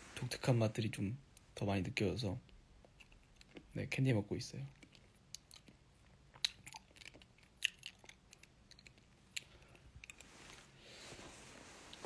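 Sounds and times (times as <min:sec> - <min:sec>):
wet mouth sounds: 0:04.7 - 0:10.2
candy clicking and crunching: 0:04.7 - 0:10.3.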